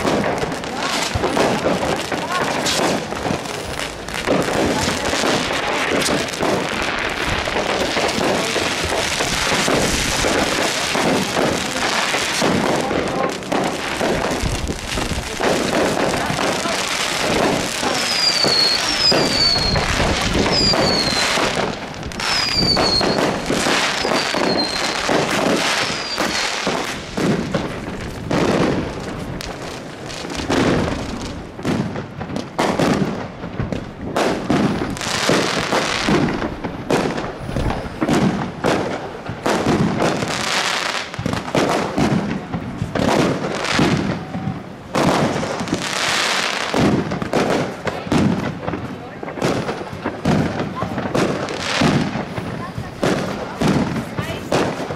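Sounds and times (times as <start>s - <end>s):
fireworks bangs and crackling: 0.0s - 54.9s
falling firework whistles: 17.8s - 27.7s.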